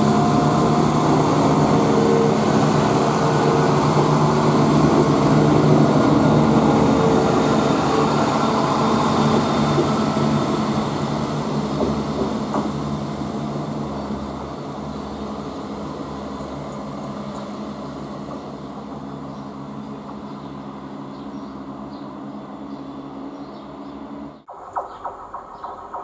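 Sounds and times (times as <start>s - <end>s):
diesel train engine hum: 0.0s - 26.0s.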